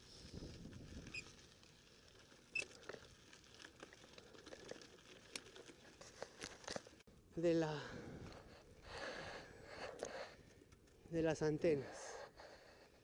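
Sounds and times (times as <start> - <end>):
bike tyres crunching on gravel: 0.0 - 7.0
clicks from stones and bike parts: 0.2 - 7.0.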